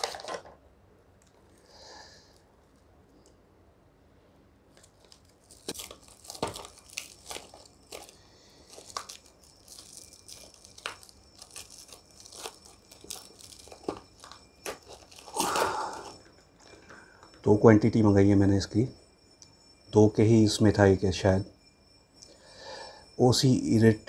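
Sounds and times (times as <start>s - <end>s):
plastic wrap crinkling: 0.0s - 0.6s, 4.7s - 17.4s.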